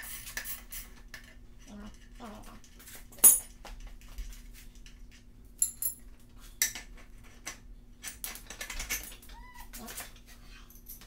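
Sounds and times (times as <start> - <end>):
metal tools clinking: 3.1 - 3.5, 5.6 - 6.0.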